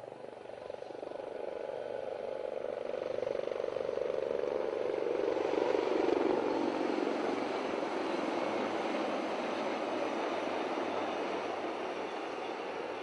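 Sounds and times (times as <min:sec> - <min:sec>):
helicopters flying low overhead: 0:00.0 - 0:13.0.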